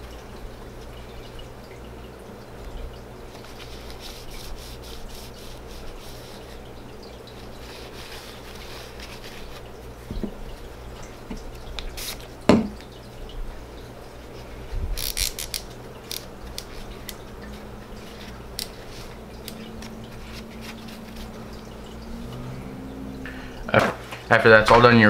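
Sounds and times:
paper towel rubbing and crinkling: 3.3 - 6.7, 7.4 - 9.8, 18.0 - 21.6.

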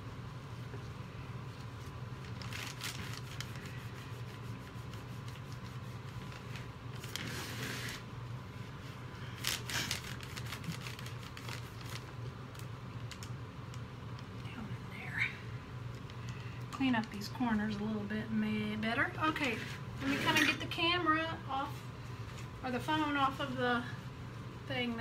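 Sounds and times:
steady low hum: 0.0 - 25.0
cloth rag rubbing: 1.5 - 8.0.

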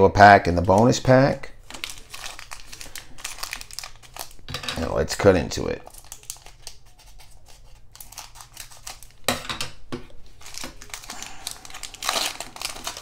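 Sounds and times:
plastic wrapper crinkling: 0.4 - 5.2, 5.8 - 9.3, 10.3 - 13.0
scissors cutting plastic: 5.8 - 9.4, 10.4 - 13.0.

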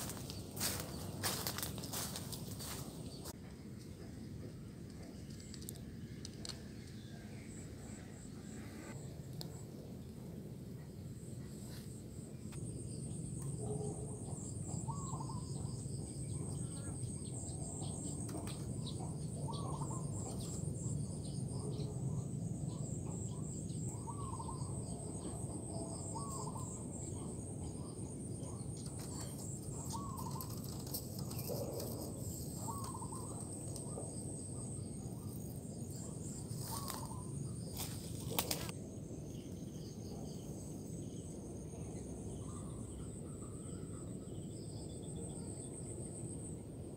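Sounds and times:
high-pitched insect trill: 12.6 - 38.7
doves cooing: 24.0 - 38.7.

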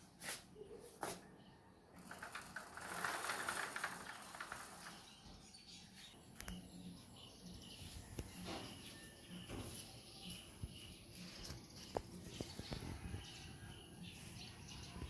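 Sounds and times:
screen door rattling along track: 2.0 - 5.7.

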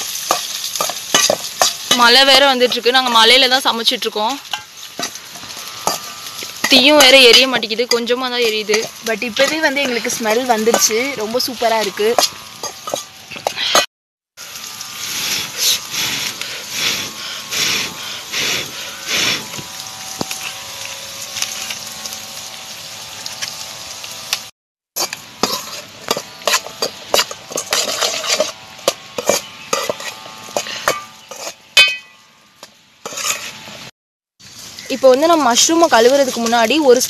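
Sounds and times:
metal spoon scraping a pan: 0.0 - 13.9, 25.0 - 32.2, 33.0 - 33.8
onions sizzling: 0.0 - 37.0.

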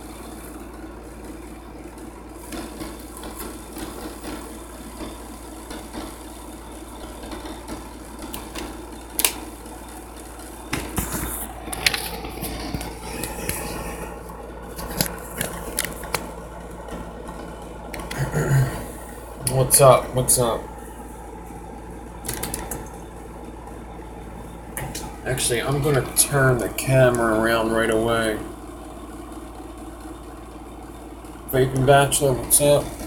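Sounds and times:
low background hum: 0.0 - 33.0.

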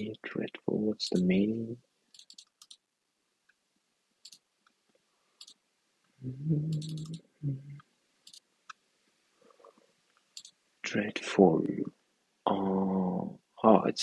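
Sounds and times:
computer keyboard and mouse clicks: 2.2 - 2.8
man humming: 6.2 - 7.8.

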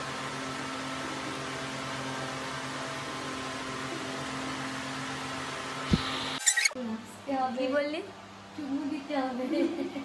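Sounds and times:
steady low hum with hiss: 5.8 - 10.0.

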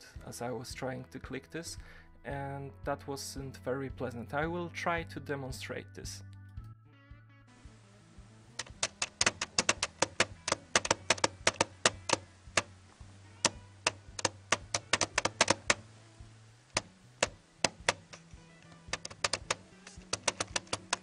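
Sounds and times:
touchpad clicking: 8.6 - 12.8, 13.4 - 15.8, 16.8 - 21.0.

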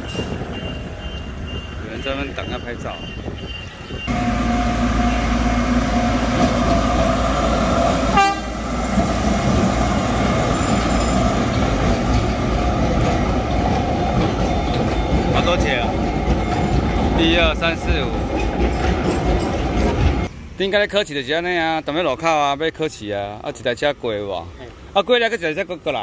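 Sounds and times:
train locomotive passing: 0.0 - 22.2
train horn: 4.1 - 9.0.

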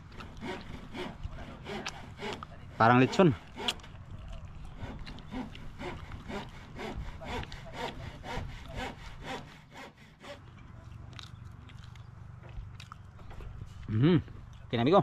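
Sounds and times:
hand saw cutting wood: 0.0 - 10.4.

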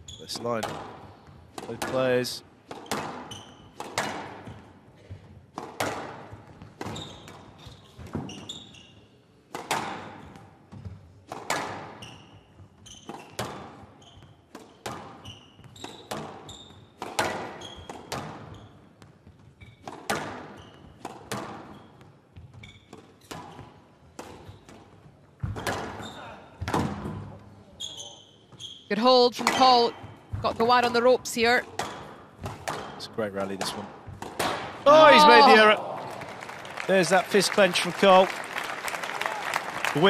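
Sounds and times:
shoes squeaking on court floor: 0.0 - 34.3
squash ball hitting rackets and walls: 0.4 - 8.7, 9.4 - 27.5, 29.3 - 34.9.

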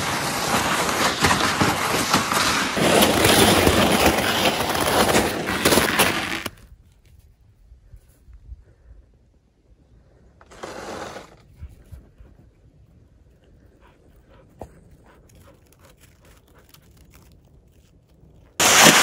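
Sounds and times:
footsteps crunching through snow: 18.6 - 19.0.

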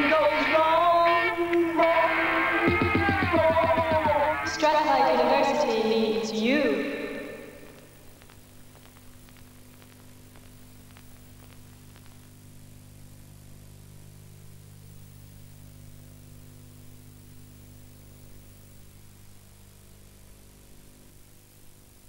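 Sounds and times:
low electrical hum: 0.0 - 22.0
tape hiss: 0.0 - 22.0
faint clicks: 7.6 - 12.7.

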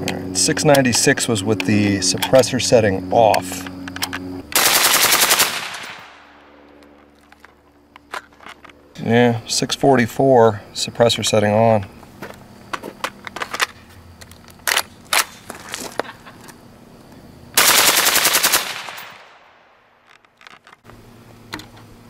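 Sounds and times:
suppressed automatic gunfire burst: 4.5 - 6.2, 17.6 - 19.3.

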